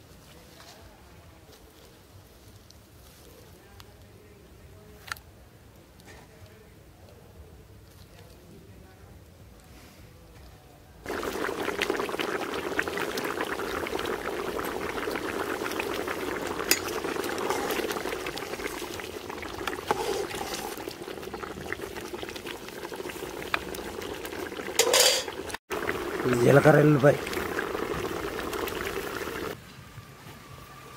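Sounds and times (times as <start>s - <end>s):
curry bubbling at a boil: 11.0s - 29.6s.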